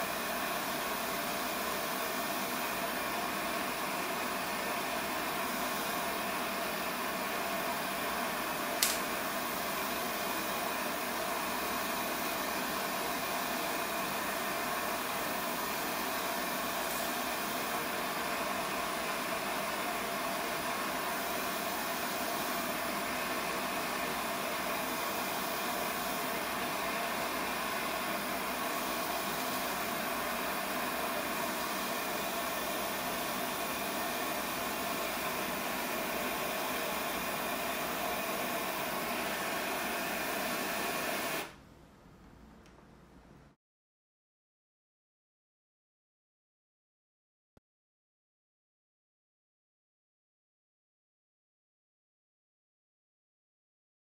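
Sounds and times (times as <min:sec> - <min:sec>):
gas burner hissing: 0:00.0 - 0:41.6.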